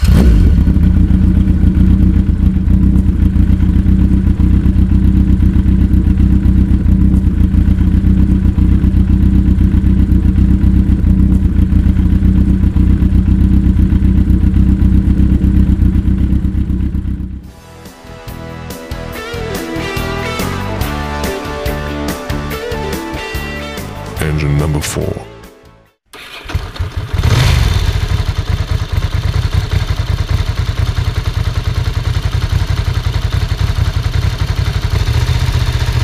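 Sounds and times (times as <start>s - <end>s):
motorcycle engine running steadily: 0.0s - 17.6s, 26.7s - 36.0s.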